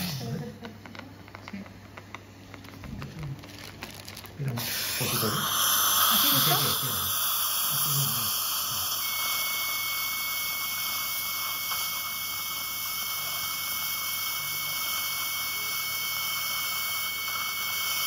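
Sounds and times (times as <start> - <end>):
suction aspirator hissing: 4.4 - 18.0
faint high whistle: 8.7 - 12.4.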